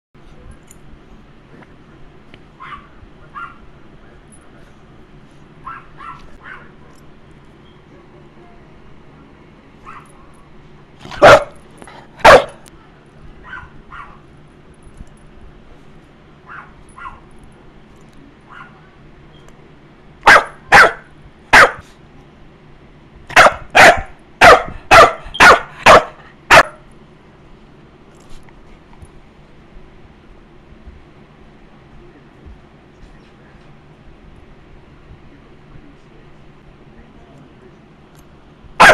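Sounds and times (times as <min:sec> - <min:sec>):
puppy yipping: 0:02.6 - 0:03.6, 0:05.6 - 0:06.7, 0:13.4 - 0:14.2
puppy barking: 0:02.6 - 0:03.7, 0:05.6 - 0:06.8, 0:09.8 - 0:10.3, 0:11.1 - 0:11.6, 0:12.2 - 0:12.6, 0:13.4 - 0:14.2, 0:16.4 - 0:17.3, 0:18.5 - 0:18.8, 0:20.2 - 0:21.9, 0:23.3 - 0:26.8.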